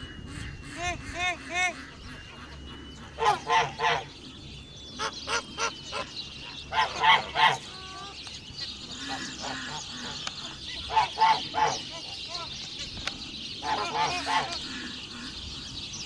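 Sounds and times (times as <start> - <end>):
geese honking: 0.0 - 16.0.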